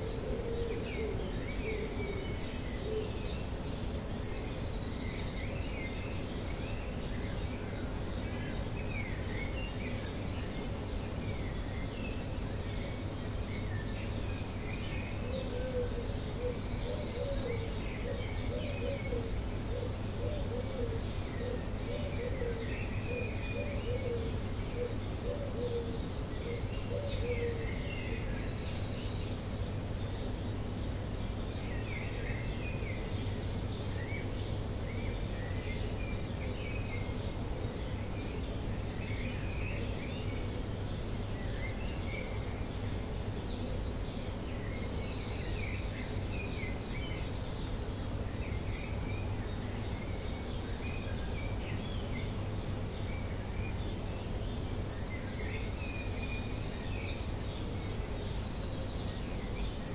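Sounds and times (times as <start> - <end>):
songbirds singing: 0.0 - 59.9.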